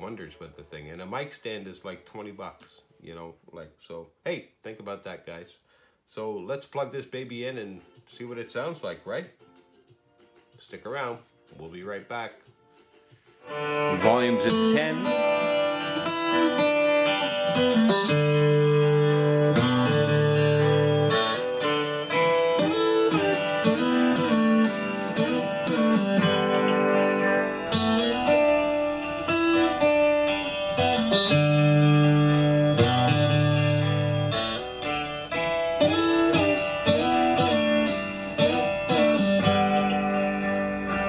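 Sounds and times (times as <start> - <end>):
guitar plucked notes and chords: 13.4 - 41.0.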